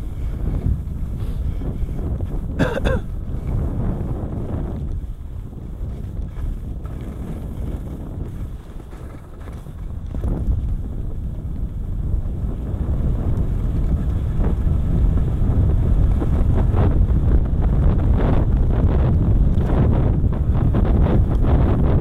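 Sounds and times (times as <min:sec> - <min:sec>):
ski edges scraping snow: 0:00.0 - 0:02.3, 0:05.8 - 0:10.4
wind buffeting microphone: 0:00.0 - 0:22.0.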